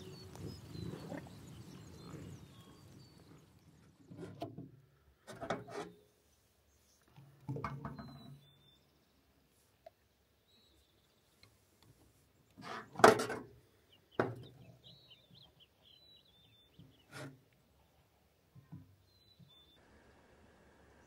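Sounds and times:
bison grunting: 0.2 - 3.5.

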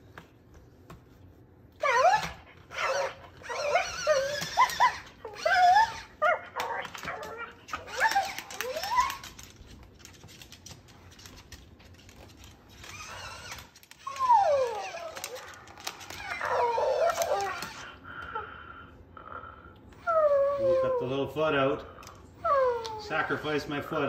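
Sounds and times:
toy puppy whining: 1.8 - 9.5, 12.8 - 18.4, 19.9 - 21.2, 22.0 - 23.8.

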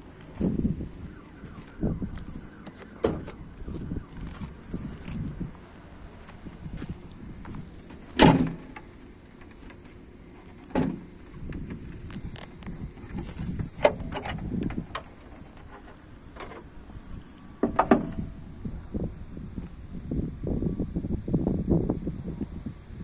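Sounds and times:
car bonnet metallic knock: 17.6 - 18.3.

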